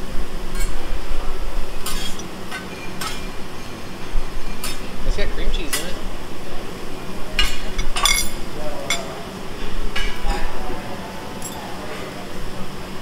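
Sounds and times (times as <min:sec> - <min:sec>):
metal utensils clinking: 0:01.8 - 0:03.8, 0:07.4 - 0:09.2, 0:11.4 - 0:11.8
faint voices: 0:04.8 - 0:13.0.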